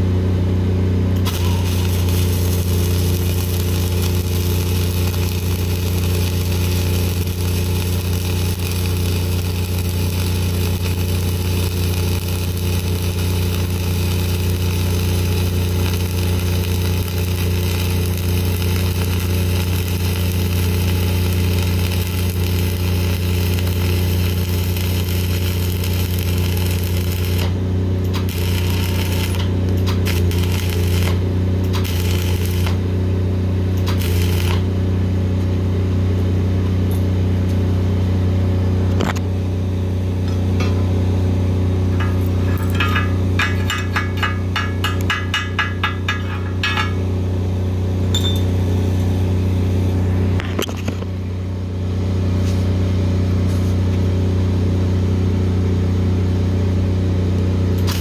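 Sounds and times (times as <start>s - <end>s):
diesel welder engine running: 0.0s - 58.0s
welding arc crackle: 1.2s - 33.0s, 33.6s - 34.8s, 41.8s - 47.2s, 57.7s - 58.0s.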